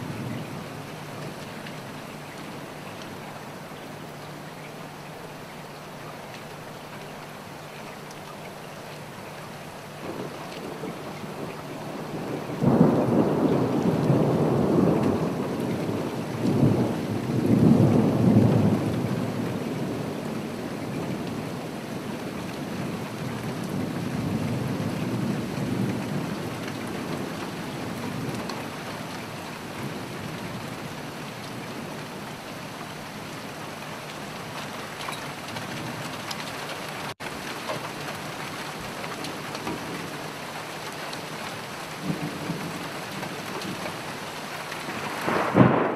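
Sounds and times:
steady rain: 0.0s - 45.9s
rolling thunder: 10.0s - 32.2s, 42.0s - 44.2s, 44.8s - 45.9s.

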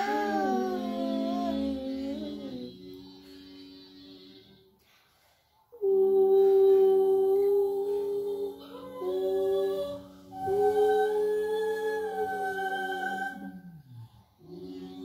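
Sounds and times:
boy humming a slow tune: 0.0s - 4.6s, 5.8s - 15.0s
steady low tone: 5.8s - 15.0s.

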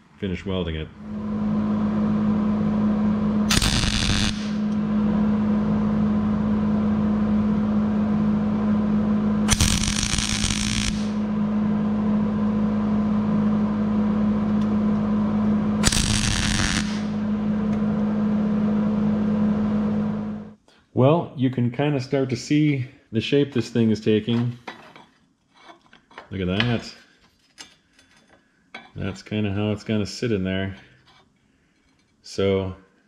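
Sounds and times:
low hum: 0.8s - 20.6s
welding arc crackling buzz: 3.4s - 5.3s, 9.4s - 11.3s, 15.8s - 17.8s
welder hiss: 3.5s - 4.6s, 9.5s - 11.2s, 15.8s - 17.2s.

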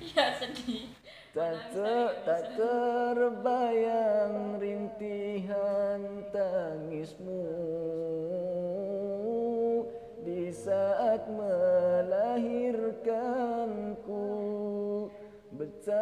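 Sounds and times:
singer breathing: 1.0s - 1.4s, 9.9s - 10.2s, 15.1s - 15.5s
man singing: 1.3s - 16.0s.

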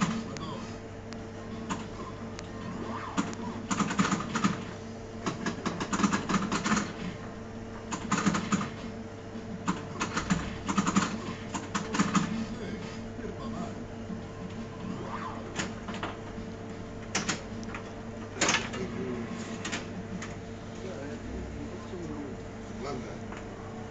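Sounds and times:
steady low hum: 0.0s - 23.9s
pinball flippers and ball clacking: 17.0s - 18.9s.

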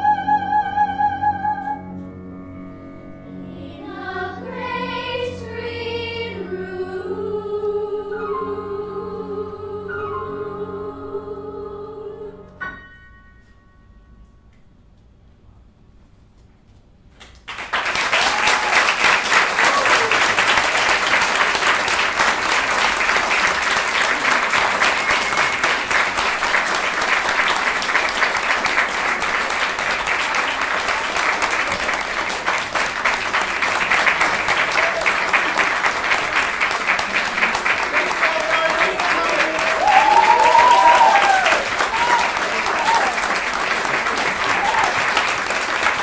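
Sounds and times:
audience applause: 17.4s - 46.0s.

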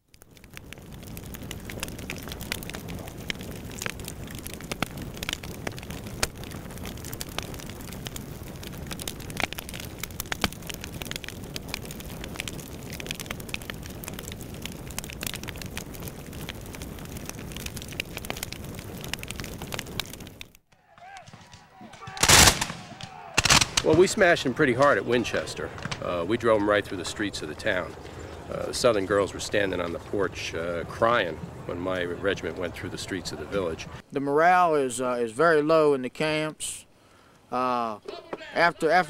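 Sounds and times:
crackling hiss with pops: 0.0s - 39.0s.

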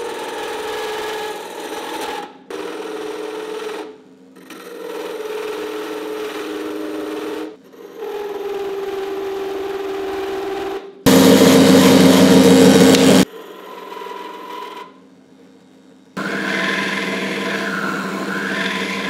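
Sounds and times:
drill press hum: 11.1s - 13.3s, 16.2s - 19.0s.

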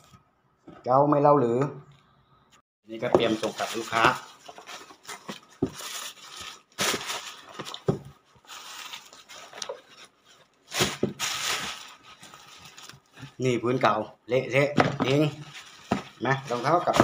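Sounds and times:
tissue paper crinkling: 3.2s - 13.4s, 15.1s - 17.0s.

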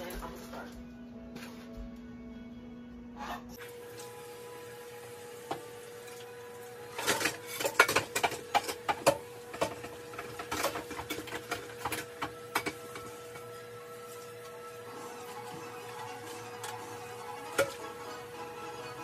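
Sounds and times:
dishes clattering in sink: 6.9s - 13.5s.

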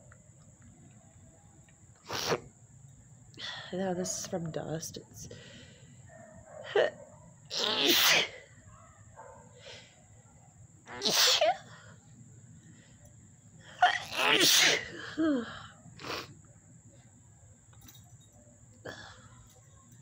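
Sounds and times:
woman sneezing: 7.5s - 8.4s, 10.9s - 11.7s, 13.8s - 15.4s.

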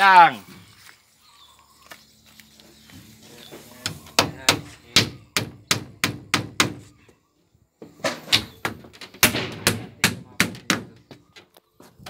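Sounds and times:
hammer driving nails into wood: 3.8s - 6.8s, 8.0s - 11.2s.

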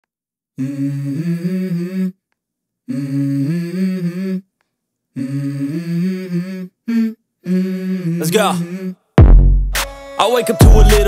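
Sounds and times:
person humming: 0.6s - 2.2s, 2.9s - 4.5s, 5.2s - 9.1s, 10.6s - 11.0s.

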